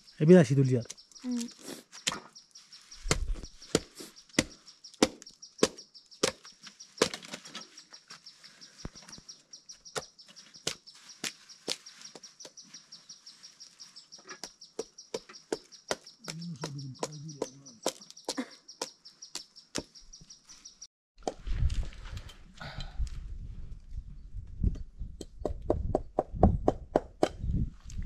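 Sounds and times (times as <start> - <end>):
knife chopping wood: 3.0 - 6.4, 7.0 - 7.4, 14.4 - 18.9.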